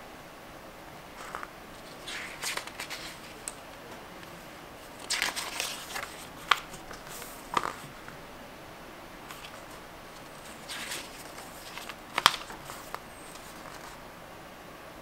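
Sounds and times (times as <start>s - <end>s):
paper page snapping: 1.2s - 3.6s, 4.9s - 8.0s, 9.3s - 14.0s
paper rustling: 1.2s - 8.2s, 9.2s - 14.0s.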